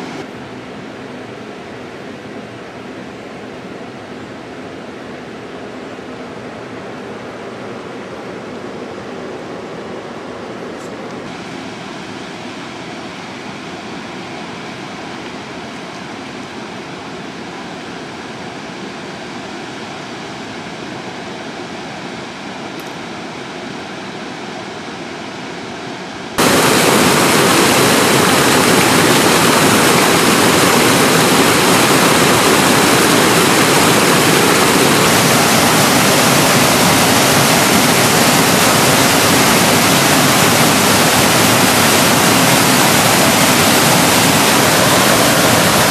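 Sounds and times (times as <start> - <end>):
waterfall rushing: 0.0 - 0.2, 26.4 - 45.9
water pouring over cascades: 26.4 - 45.9.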